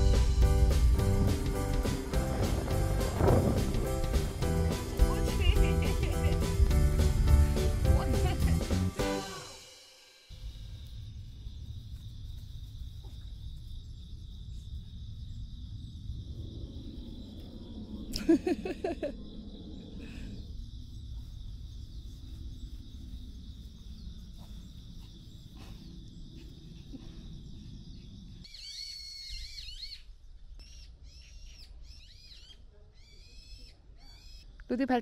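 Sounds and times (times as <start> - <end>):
low wind rumble: 0.0 - 9.0, 10.3 - 28.5
birds chirping: 17.0 - 35.0.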